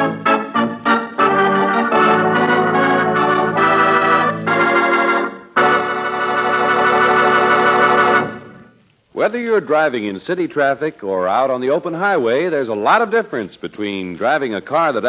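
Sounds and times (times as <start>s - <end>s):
organ chords: 0.0s - 8.8s.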